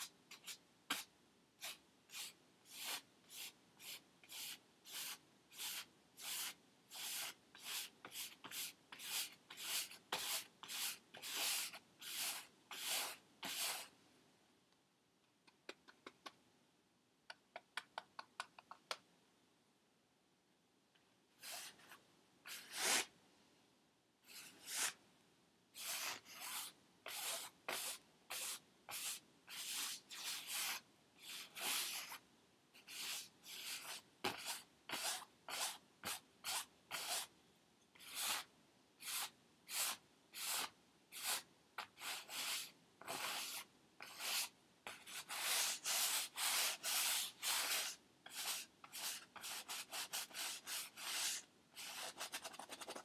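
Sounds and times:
paintbrush scrubbing on canvas: 21.4s - 23.1s.

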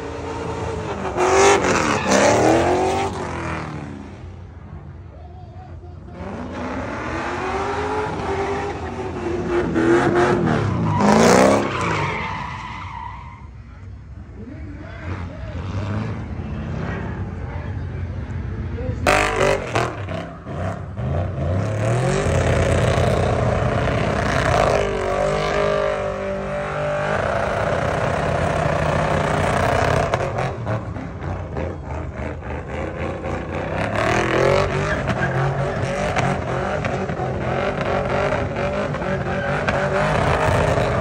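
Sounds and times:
truck engine revving: 19.1s - 41.0s.

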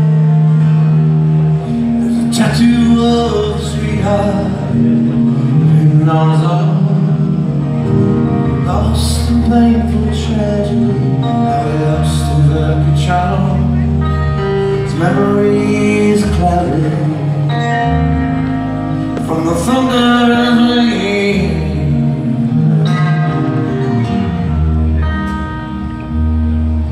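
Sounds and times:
live rock band playing: 0.0s - 26.9s.

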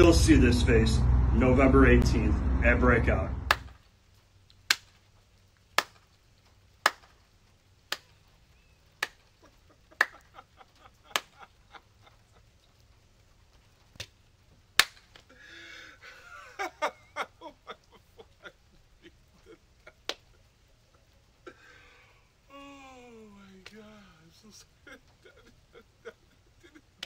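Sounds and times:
sharp slaps: 3.5s - 3.8s, 4.7s - 5.0s, 5.8s - 6.1s, 6.8s - 7.2s, 7.9s - 8.2s, 9.0s - 9.2s, 11.1s - 11.4s, 14.0s - 14.2s, 14.8s - 15.3s.

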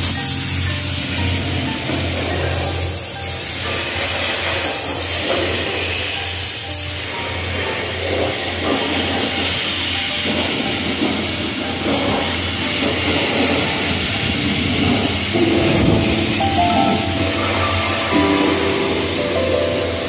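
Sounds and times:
pressure washer spraying water: 0.0s - 20.0s
music with held tones: 15.3s - 20.0s.

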